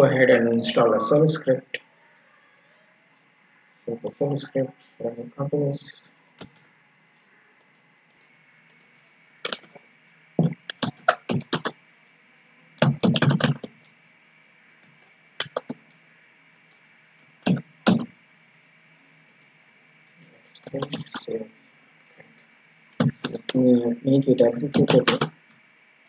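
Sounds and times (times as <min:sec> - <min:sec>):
computer keyboard typing: 0:10.4 - 0:11.7, 0:12.8 - 0:13.7, 0:15.4 - 0:15.8, 0:23.0 - 0:23.6, 0:24.6 - 0:25.3.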